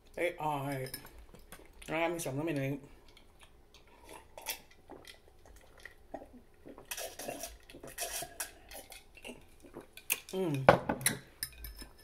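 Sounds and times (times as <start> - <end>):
person gulping a drink: 3.9 - 10.5.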